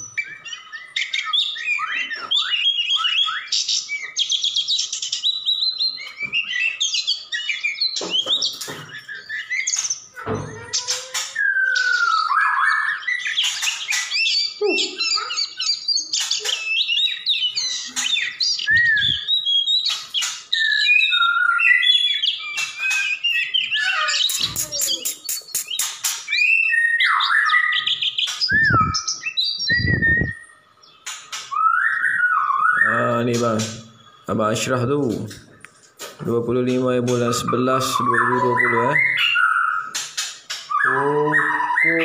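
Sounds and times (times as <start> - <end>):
bird singing whistled phrases: 0.0 - 34.7, 37.1 - 42.0
bird clicking notes: 24.2 - 26.4.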